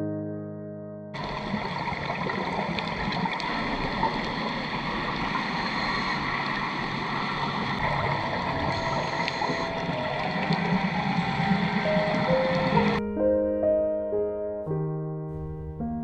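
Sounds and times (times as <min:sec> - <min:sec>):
faint steady tones: 0:01.2 - 0:13.0
underwater hiss and rumble: 0:01.2 - 0:13.0.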